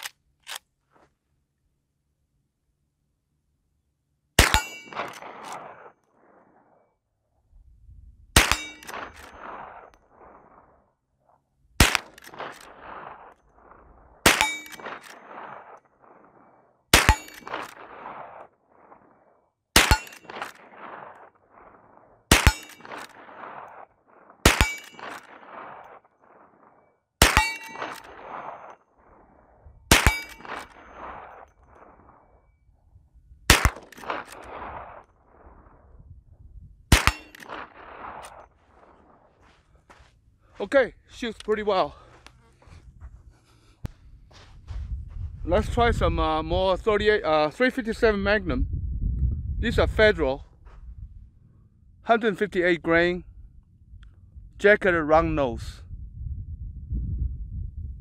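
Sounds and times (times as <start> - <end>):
rifle shots with echo: 4.4 - 6.8, 8.3 - 11.0, 11.8 - 32.6, 33.4 - 36.0, 36.9 - 39.6.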